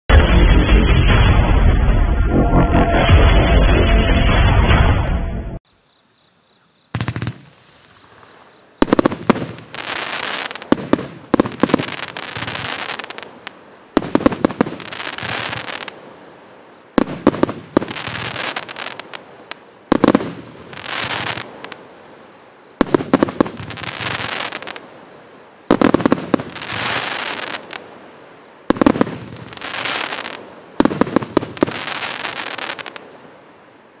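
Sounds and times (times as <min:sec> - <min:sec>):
crackling firework bursts: 0:06.9 - 0:33.4.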